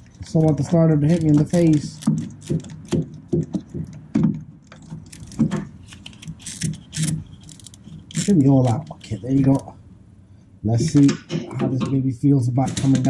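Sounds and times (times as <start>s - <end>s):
hand ratchet clicking: 4.8s - 9.6s.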